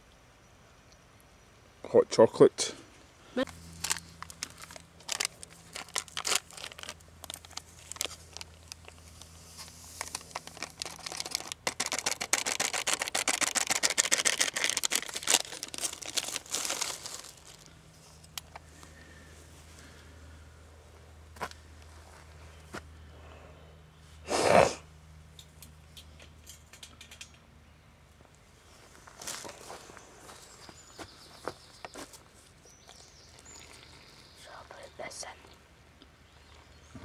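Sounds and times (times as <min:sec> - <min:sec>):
paper-foil sachet crinkling and tearing: 0:03.4 - 0:17.8
faint low hum: 0:15.9 - 0:37.0.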